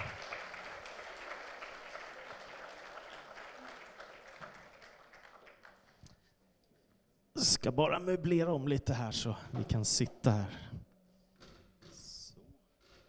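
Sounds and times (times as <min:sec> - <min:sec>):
congregation applauding: 0:00.0 - 0:06.2.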